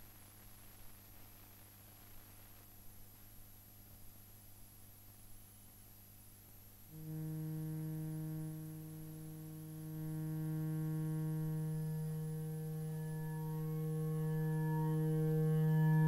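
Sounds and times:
faint mains hum: 0.0 - 16.0
low synthesizer drone: 6.9 - 16.0.

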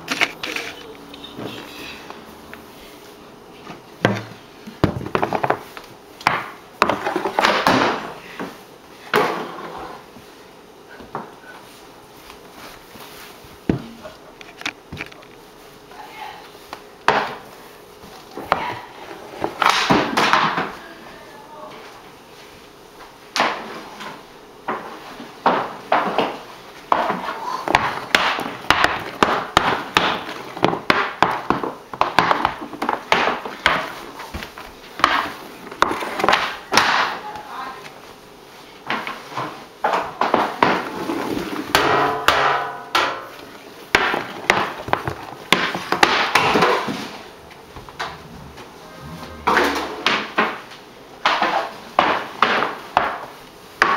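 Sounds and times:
hockey stick and puck clacking: 19.6 - 20.7, 25.5 - 34.0, 35.0 - 37.2, 41.7 - 43.2, 44.0 - 47.1.

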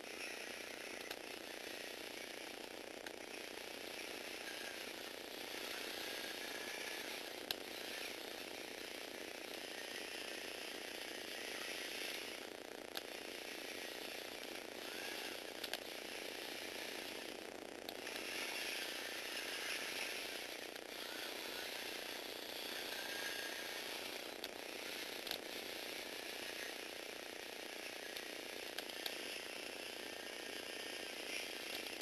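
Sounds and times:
toy robot motor whirring: 0.0 - 32.0
sharp clicks: 15.6 - 15.8.

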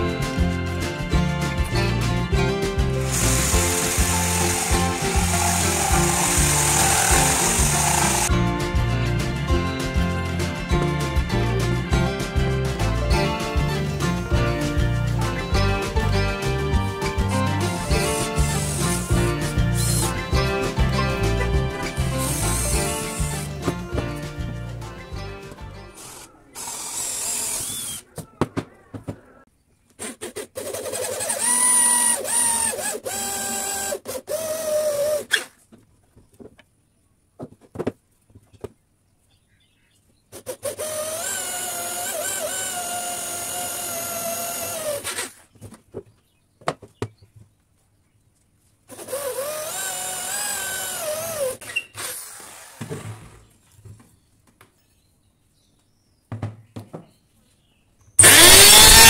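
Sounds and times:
electric drill boring into wood: 3.0 - 8.3, 17.7 - 20.2, 22.2 - 23.5, 26.0 - 28.0, 30.3 - 35.5, 40.5 - 45.4, 48.9 - 52.8, 58.2 - 59.0
handling knocks: 56.3 - 57.2.

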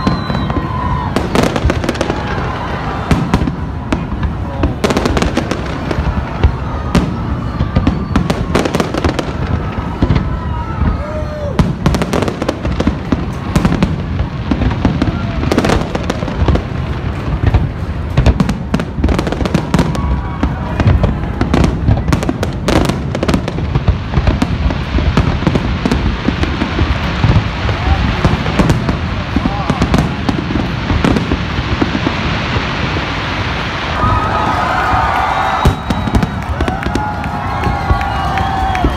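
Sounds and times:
fireworks cracking: 0.0 - 38.9.

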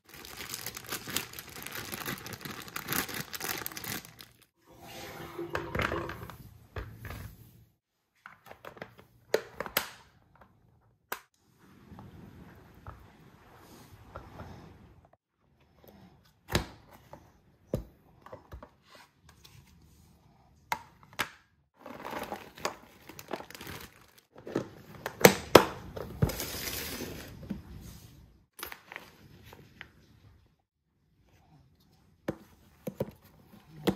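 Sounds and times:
plastic snack bag rustling: 0.0 - 4.5, 21.8 - 24.3.

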